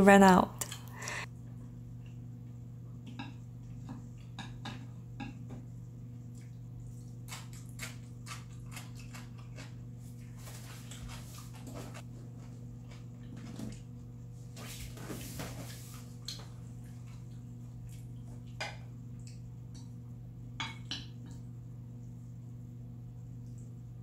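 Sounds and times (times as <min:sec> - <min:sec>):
steady low hum: 0:00.0 - 0:24.0
chewing and slurping noodles: 0:06.4 - 0:09.8.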